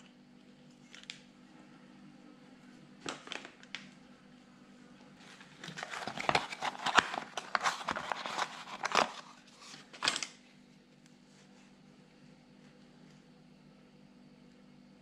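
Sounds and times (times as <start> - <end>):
cardboard box tearing and rustling: 5.6 - 9.3.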